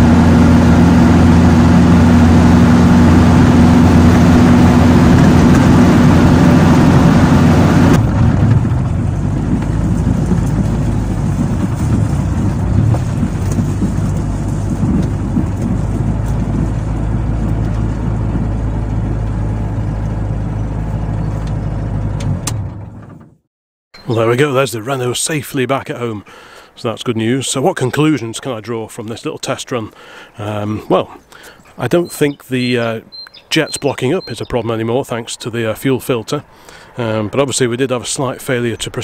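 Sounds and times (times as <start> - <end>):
car engine running inside cabin: 0.0 - 23.2.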